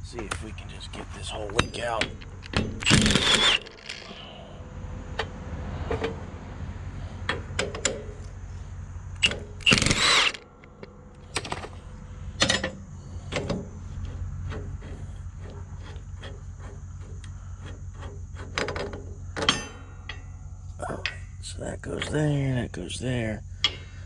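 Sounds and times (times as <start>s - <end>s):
metal clicks and clanks: 1.4s - 4.3s, 7.2s - 8.3s, 9.2s - 11.8s, 12.4s - 20.4s, 21.0s - 21.2s, 23.6s - 23.9s
cordless drill spinning: 2.8s - 4.1s, 9.6s - 10.4s.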